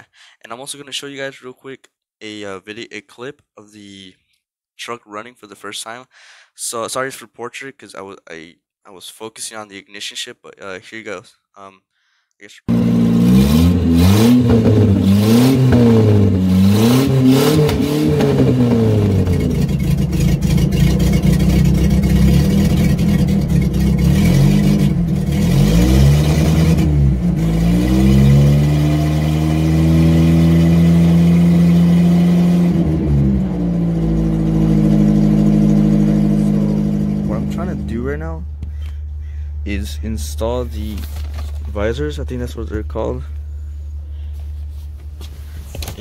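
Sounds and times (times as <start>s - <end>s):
engine revving: 12.7s - 39.0s.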